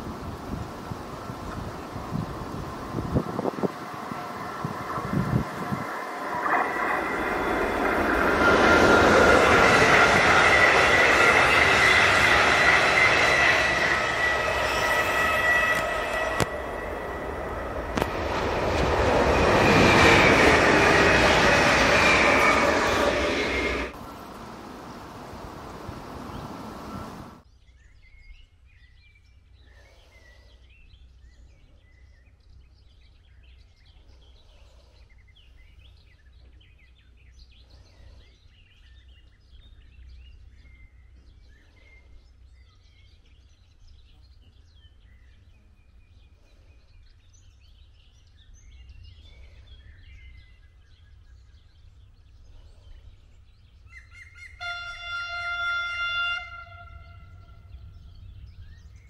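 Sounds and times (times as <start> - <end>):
low outdoor rumble: 0.0 - 27.4
train horn: 7.1 - 24.0, 54.4 - 57.9
songbirds chirping: 24.0 - 59.0.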